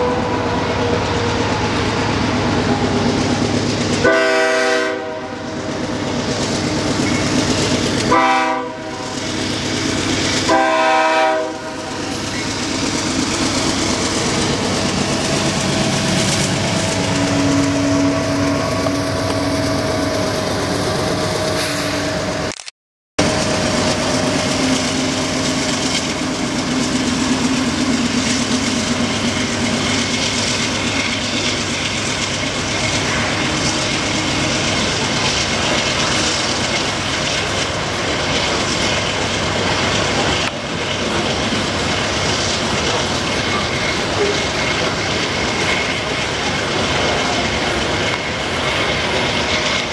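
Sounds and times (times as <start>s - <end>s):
train rumbling and clacking on rails: 0.0s - 22.5s, 23.2s - 49.9s
locomotive engine drone: 0.0s - 22.6s, 23.2s - 49.9s
train air horn blasts: 4.0s - 5.5s, 8.1s - 9.1s, 10.5s - 12.2s, 17.0s - 19.5s.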